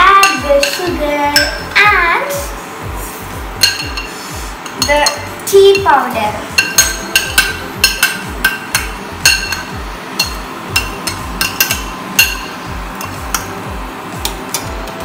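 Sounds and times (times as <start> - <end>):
background music with steady beat: 0.0 - 15.0
metal spoon clinking against saucepan: 0.2 - 1.6, 3.6 - 5.9, 6.6 - 13.5.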